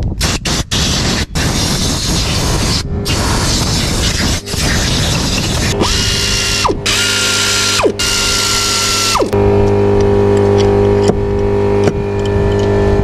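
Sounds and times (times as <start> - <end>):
air ratchet whirring: 0.0 - 9.4
low hum with tones: 2.3 - 13.0.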